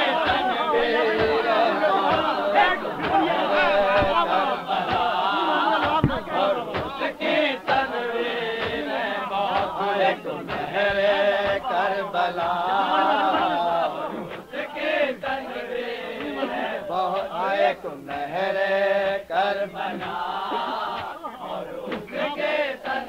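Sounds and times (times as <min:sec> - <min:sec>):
men chanting together: 0:00.0 - 0:23.0
sharp knocks: 0:03.0 - 0:05.1, 0:05.8 - 0:07.0.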